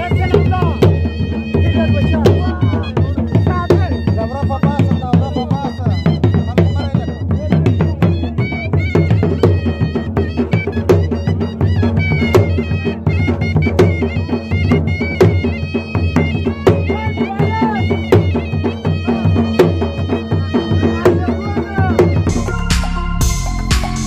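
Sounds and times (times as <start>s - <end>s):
dhol drum beating: 0.0s - 24.0s
wavering folk melody: 0.0s - 24.0s
electronic music: 22.3s - 24.0s.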